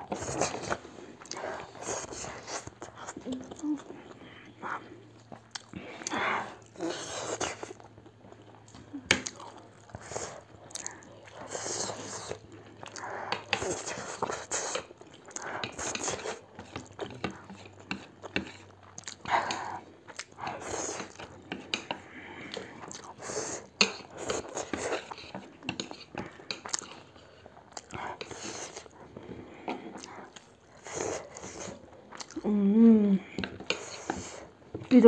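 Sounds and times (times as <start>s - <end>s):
people chewing: 0.0s - 35.0s.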